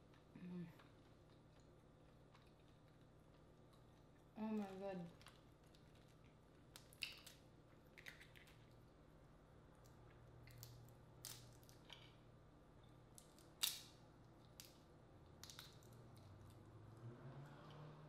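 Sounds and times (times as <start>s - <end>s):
crawfish shells cracking: 3.7s - 8.8s, 9.8s - 12.2s, 13.1s - 14.8s, 15.4s - 16.6s.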